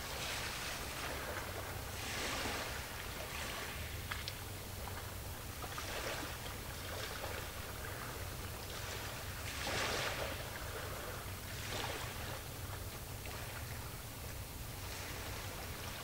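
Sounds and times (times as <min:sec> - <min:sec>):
sea waves washing in: 0:00.0 - 0:12.6, 0:13.2 - 0:16.0
steady low hum: 0:00.0 - 0:16.0.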